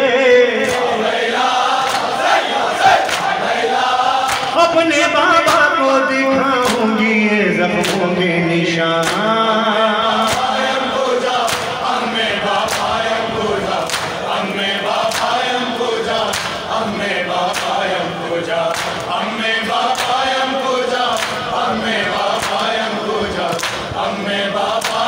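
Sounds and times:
men chanting a lament: 0.0s - 25.0s
hands slapping chests: 0.6s - 1.0s, 1.8s - 3.6s, 4.2s - 4.6s, 9.0s - 9.2s, 10.3s - 10.7s, 11.4s - 11.9s, 12.6s - 13.0s, 13.7s - 15.5s, 16.1s - 16.7s, 17.5s - 17.9s, 18.6s - 20.4s, 21.0s - 21.6s, 22.2s - 22.8s, 23.5s - 24.0s, 24.7s - 25.0s.

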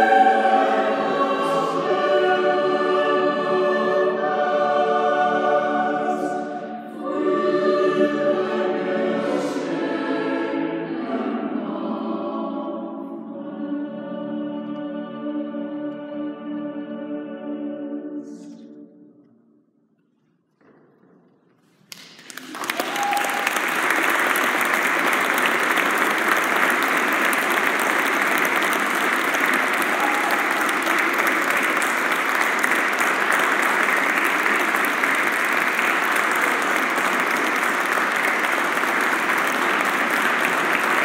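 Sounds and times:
audience applause: 21.8s - 41.0s.

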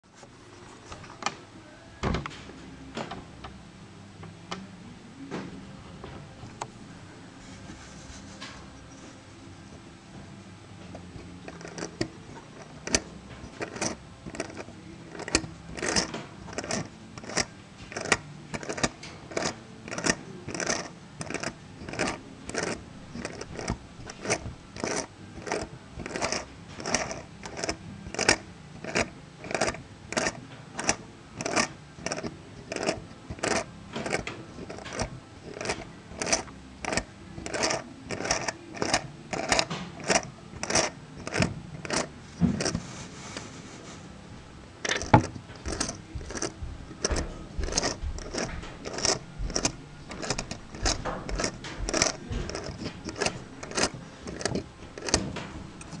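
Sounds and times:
small metal gear clicks: 11.5s - 42.1s, 44.9s - 56.0s.

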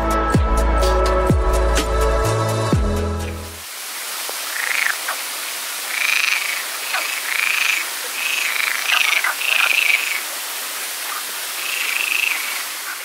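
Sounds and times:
steady background hiss: 3.6s - 13.0s
frogs croaking: 3.9s - 13.0s.

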